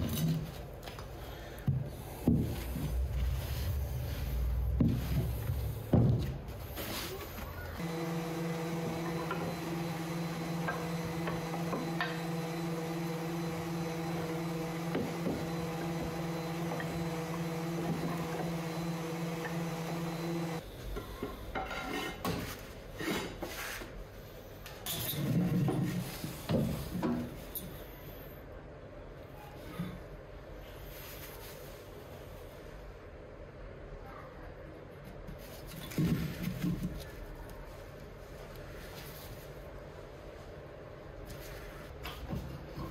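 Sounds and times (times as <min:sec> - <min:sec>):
sander motor hum: 0:07.8 - 0:20.6.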